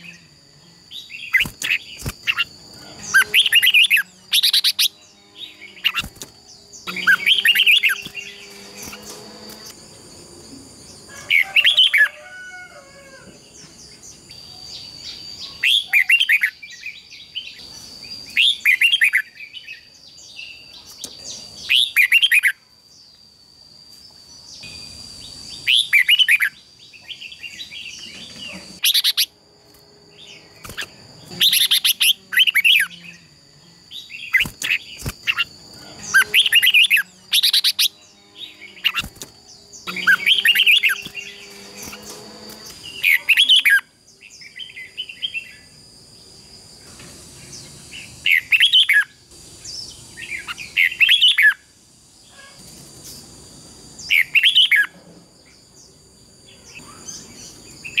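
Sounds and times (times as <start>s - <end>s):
bulbuls singing: 0.0s - 12.4s, 24.4s - 45.9s.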